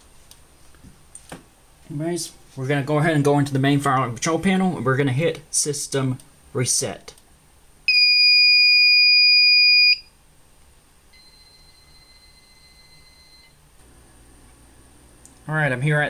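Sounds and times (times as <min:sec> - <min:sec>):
high steady beep: 0:07.9 - 0:10.1, 0:11.2 - 0:13.6
faint lower beep: 0:11.1 - 0:13.6.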